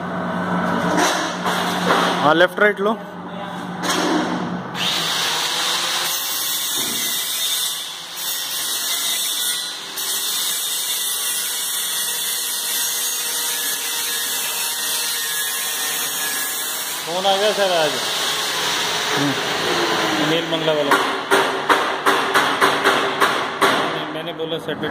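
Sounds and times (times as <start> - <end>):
router motors whirring: 4.8 - 6.3.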